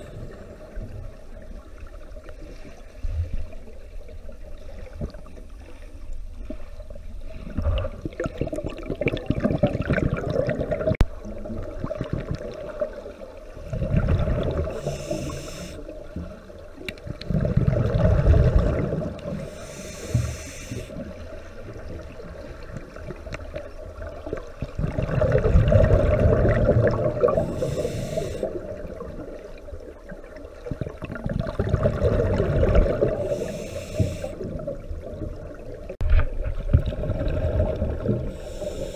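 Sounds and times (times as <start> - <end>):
gurgling exhaled bubbles: 7.3 - 15.3, 17.0 - 19.6, 21.0 - 38.8
regulator inhale hiss: 14.6 - 16.0, 19.3 - 21.1, 27.4 - 28.8, 33.1 - 34.7, 38.3 - 38.9.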